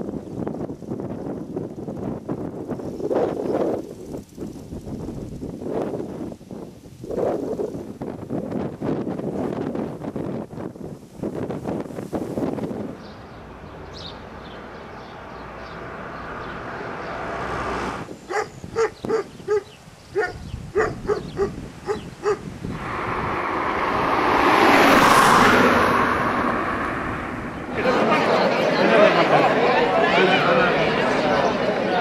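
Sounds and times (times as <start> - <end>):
large dog barking: 18.3 - 22.4
broad rush of noise: 22.4 - 32.0.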